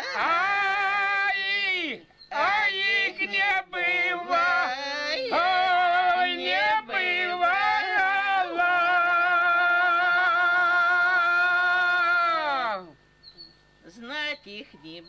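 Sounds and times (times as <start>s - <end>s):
group singing unaccompanied: 0.0s - 12.5s.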